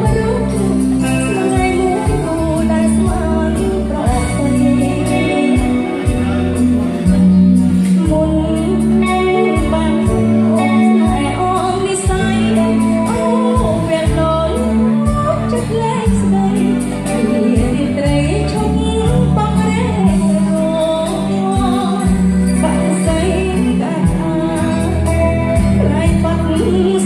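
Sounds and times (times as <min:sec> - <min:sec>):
amplified band playing: 0:00.0 - 0:27.0
woman singing into a microphone: 0:00.0 - 0:27.0.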